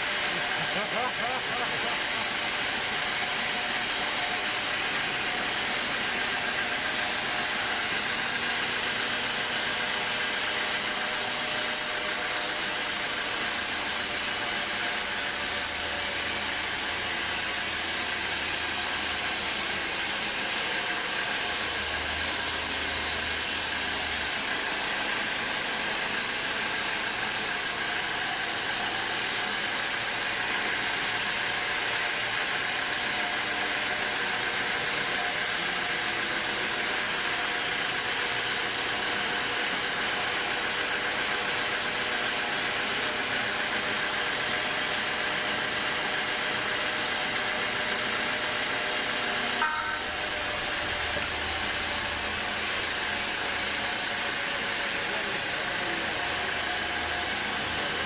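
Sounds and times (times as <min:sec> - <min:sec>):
band saw cutting wood: 0:10.8 - 0:30.4.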